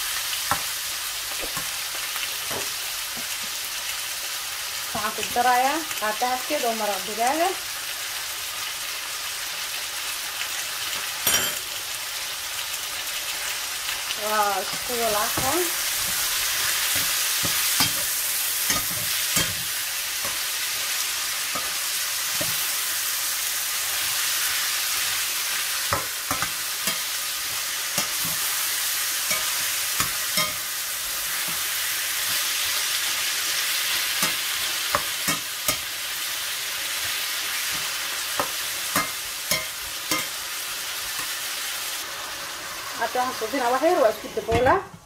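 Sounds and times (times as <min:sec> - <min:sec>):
chicken and onions sizzling in pan: 0:00.0 - 0:45.0
spatula scraping and tapping pan: 0:14.6 - 0:20.5, 0:25.9 - 0:28.6.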